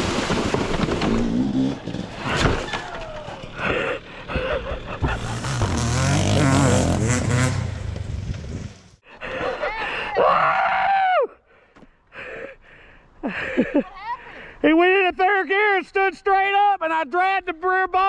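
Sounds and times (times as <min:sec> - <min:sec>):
off-road engine revving: 0:01.0 - 0:02.4, 0:03.2 - 0:09.0.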